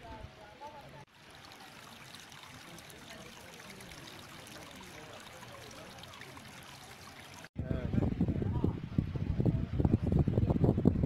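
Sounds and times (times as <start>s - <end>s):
water trickling: 1.0s - 7.6s.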